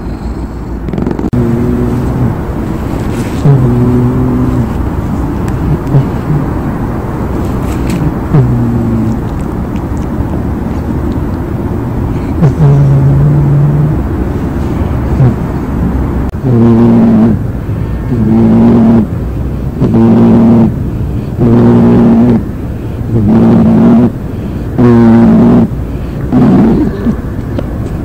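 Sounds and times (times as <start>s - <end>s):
soft low rumble: 0.0s - 28.0s
cat snoring: 0.1s - 4.8s, 5.5s - 6.6s, 7.4s - 9.3s, 12.1s - 14.0s, 15.1s - 15.4s, 16.4s - 17.4s, 18.1s - 19.1s, 19.8s - 20.7s, 21.3s - 22.4s, 23.1s - 24.1s, 24.8s - 25.7s, 26.3s - 27.2s.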